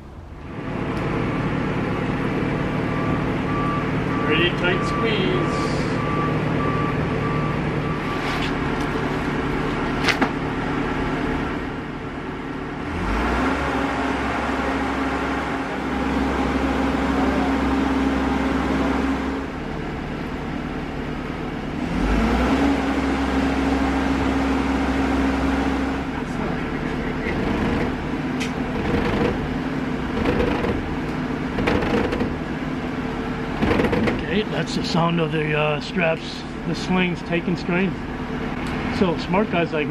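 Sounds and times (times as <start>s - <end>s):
beeping: 2.8s - 9.0s
boat hoist engine running: 26.9s - 32.6s, 33.2s - 34.8s.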